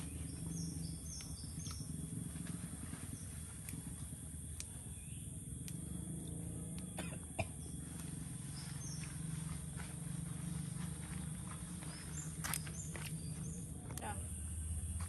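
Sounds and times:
steady low hum: 0.0s - 15.0s
beans snapping by hand: 4.4s - 4.8s, 5.6s - 5.8s.

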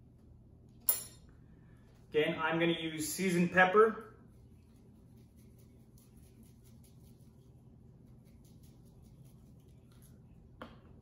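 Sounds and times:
low room hum: 0.0s - 11.0s
spice shaker shaking: 4.3s - 10.4s.

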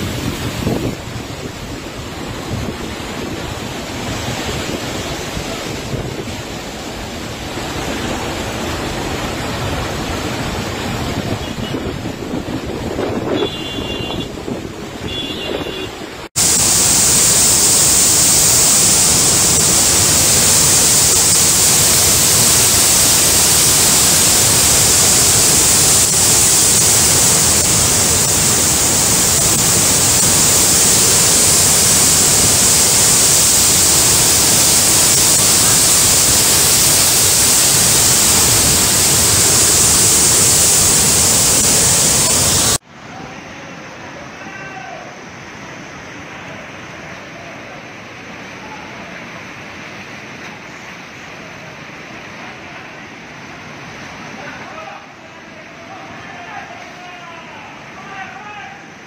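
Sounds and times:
floodwater rushing: 0.0s - 44.4s.

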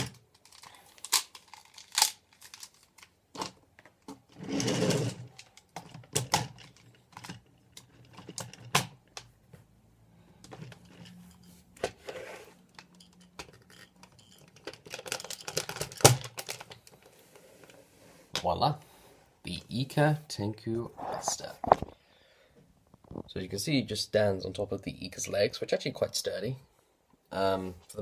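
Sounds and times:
plastic parts clicking and clacking: 0.0s - 9.3s, 10.4s - 12.1s, 12.7s - 17.8s
rustling handling noise: 0.2s - 18.7s, 20.7s - 22.0s.

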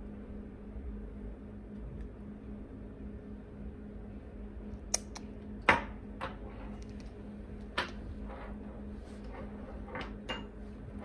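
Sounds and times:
low electrical hum: 0.0s - 11.0s.

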